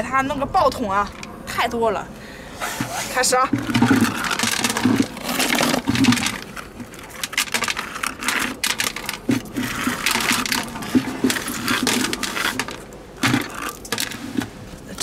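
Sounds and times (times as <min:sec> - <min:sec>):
wooden scraper rasping on rock: 0:02.6 - 0:14.5
snails rattling into plastic bucket: 0:03.2 - 0:14.5.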